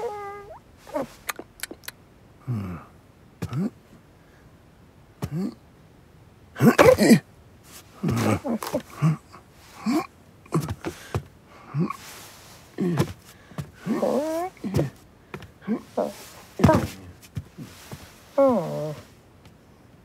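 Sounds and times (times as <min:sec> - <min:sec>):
cartoon grunts gasps and yelps: 0:06.6 - 0:07.2, 0:13.8 - 0:15.0, 0:15.6 - 0:19.0
loud noisy vocal outburst: 0:06.6 - 0:07.3, 0:13.8 - 0:15.0.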